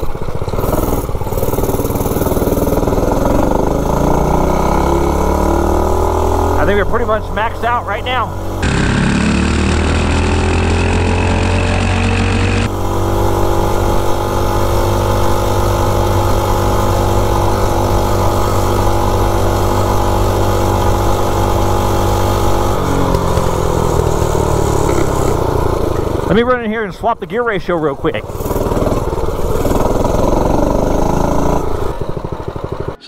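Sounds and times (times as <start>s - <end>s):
mini bike engine at full speed: 0.0s - 33.0s.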